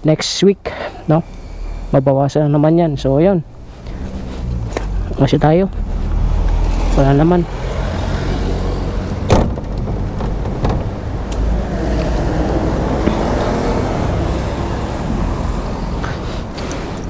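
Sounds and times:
metal gate clanking shut: 9.2 - 11.5.

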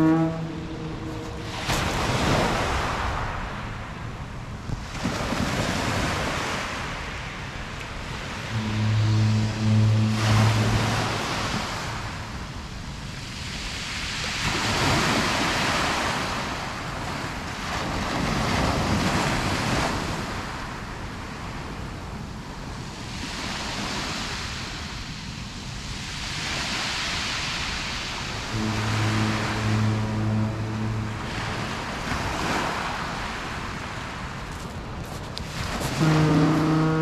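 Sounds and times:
small waves on pebble beach: 1.4 - 4.0, 4.7 - 8.5, 12.6 - 21.8, 31.2 - 36.9.

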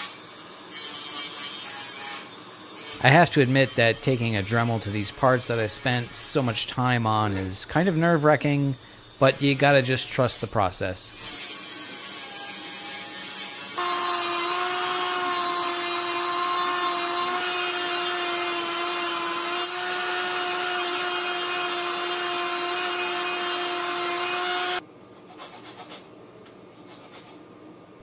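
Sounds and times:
hand file scraping plastic: 26.8 - 27.4.

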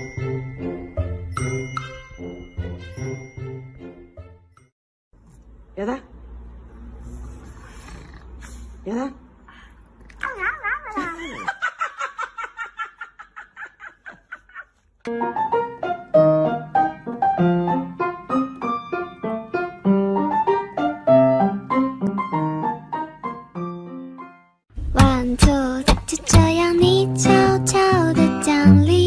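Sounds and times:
piano music: 0.0 - 4.5, 15.1 - 29.0.

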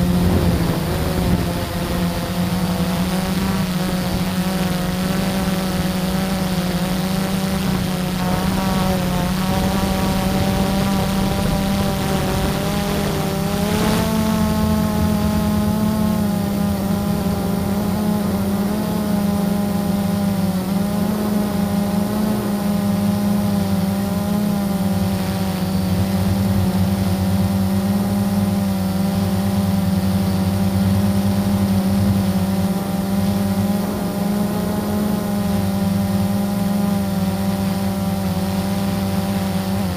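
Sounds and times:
drone motors whining: 0.0 - 39.9.

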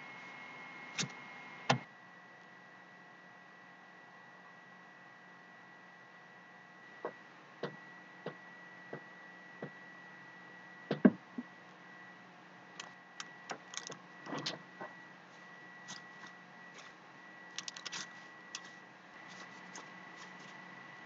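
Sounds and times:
faint high hum: 0.0 - 21.0
small clicks and rustles: 15.8 - 20.6.

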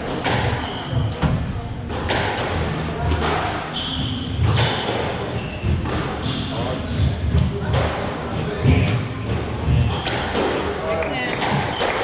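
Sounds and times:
court shoes squeaking: 0.0 - 10.6, 11.3 - 12.0
squash ball cracking off racket: 1.9 - 3.5.

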